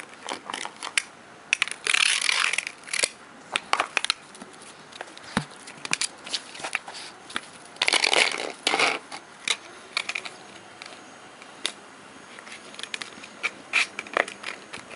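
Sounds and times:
puppy scraping on paving stones: 0:03.8 - 0:11.0, 0:12.3 - 0:14.9.

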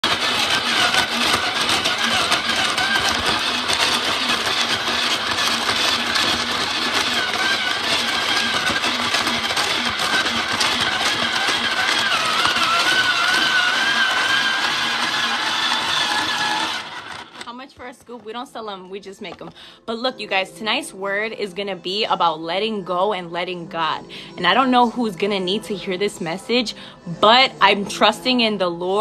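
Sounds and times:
ice shaving machine grinding whine: 0:00.0 - 0:20.8.

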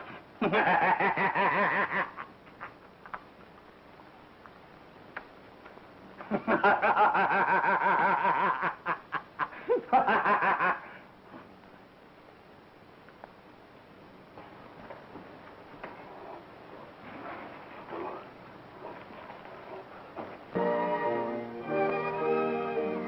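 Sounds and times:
man laughing: 0:00.4 - 0:02.7, 0:06.2 - 0:11.0.

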